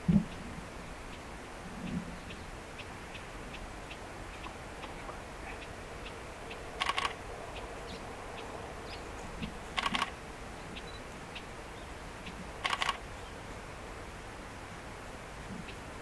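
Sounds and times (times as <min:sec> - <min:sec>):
faint ticks: 0:01.1 - 0:10.2, 0:12.2 - 0:13.0
camera shutter clicks: 0:06.8 - 0:07.2, 0:09.8 - 0:10.1, 0:12.6 - 0:13.0.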